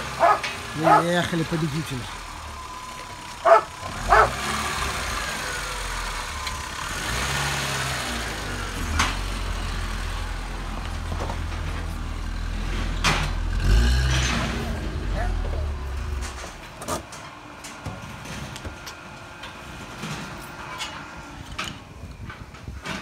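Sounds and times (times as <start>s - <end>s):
car engine running: 0.0s - 17.0s
dog barking: 0.2s - 1.2s, 3.4s - 4.4s.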